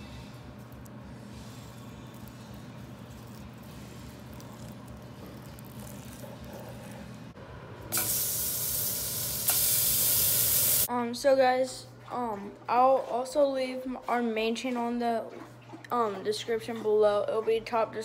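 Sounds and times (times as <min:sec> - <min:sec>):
steaks sizzling in frying pan: 0:08.1 - 0:10.9.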